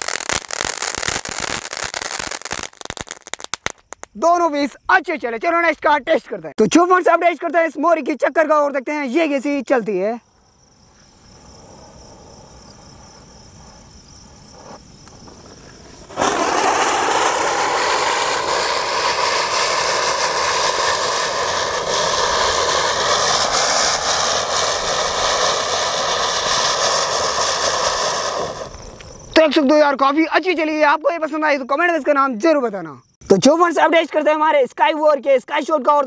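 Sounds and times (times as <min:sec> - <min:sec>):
spinning firework hissing: 0:00.0 - 0:04.2, 0:10.6 - 0:29.4
fuse fizzing: 0:16.0 - 0:29.1.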